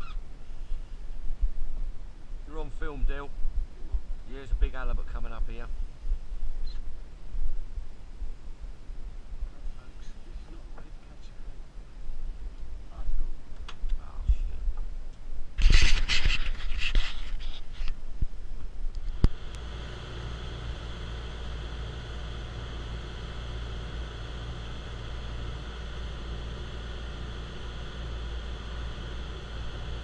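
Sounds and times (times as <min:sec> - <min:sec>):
camera handling rustle: 0:15.6 - 0:18.0
boat engine drone: 0:19.1 - 0:30.0.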